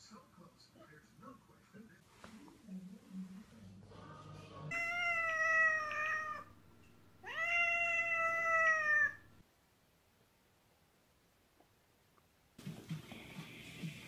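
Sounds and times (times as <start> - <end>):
cat meowing: 4.7 - 6.6, 7.2 - 9.4.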